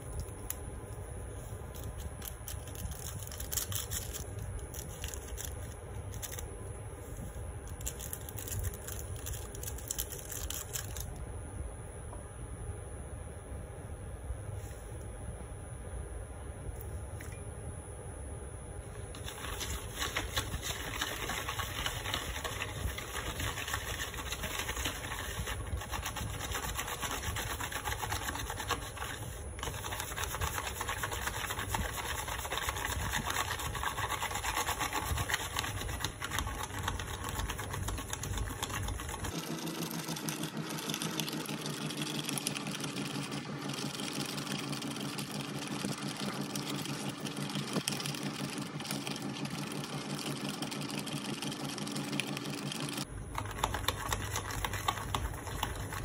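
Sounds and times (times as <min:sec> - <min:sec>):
spoon beating coffee in a bowl: 0:19.2 - 0:39.3, 0:53.3 - 0:56.0.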